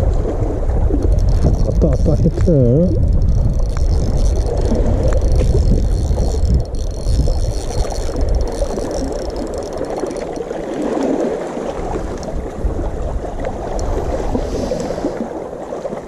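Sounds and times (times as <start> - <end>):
low rumble: 0.0 - 8.4
sea water washing against rocks: 0.0 - 16.0
faint clicks: 0.9 - 10.8.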